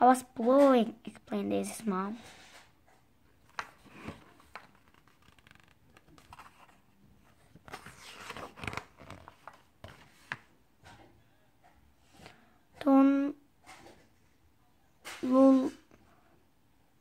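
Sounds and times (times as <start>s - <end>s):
page rustling and sliding: 3.4s - 10.5s.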